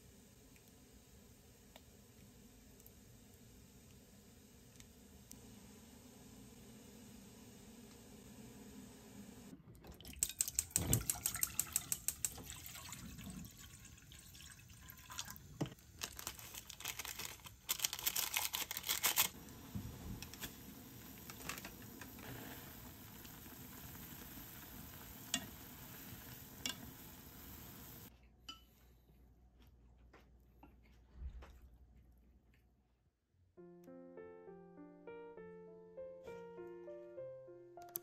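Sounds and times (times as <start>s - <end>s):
plastic packets crinkling: 15.8s - 19.4s.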